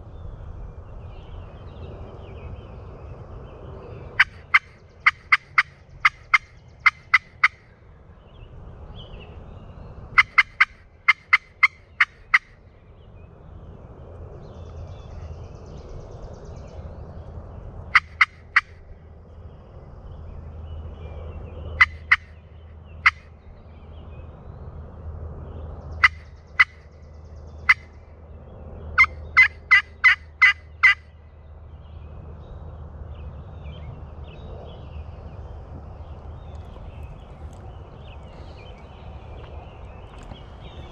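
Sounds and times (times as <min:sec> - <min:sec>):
turkey call yelps: 0:04.2 - 0:07.6, 0:10.2 - 0:12.6, 0:18.0 - 0:18.8, 0:21.8 - 0:22.3, 0:26.0 - 0:26.8, 0:29.0 - 0:31.0.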